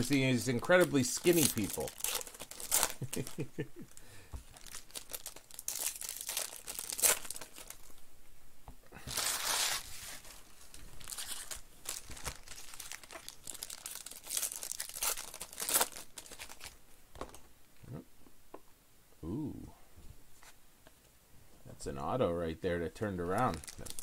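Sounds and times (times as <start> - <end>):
foil wrappers torn and crinkled: 0.0 - 3.4, 4.5 - 8.0, 9.1 - 16.8, 23.3 - 24.0.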